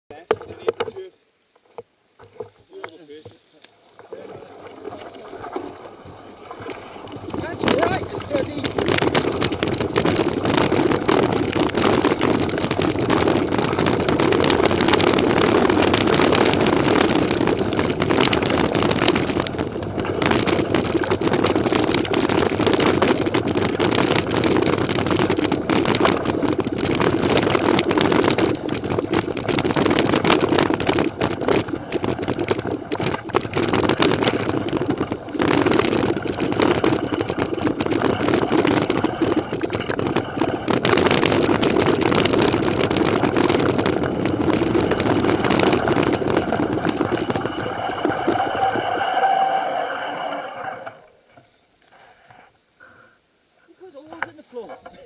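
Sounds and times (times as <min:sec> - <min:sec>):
tyres rumbling on dirt: 0:03.9 - 0:51.4
bike frame rattling: 0:03.9 - 0:51.6.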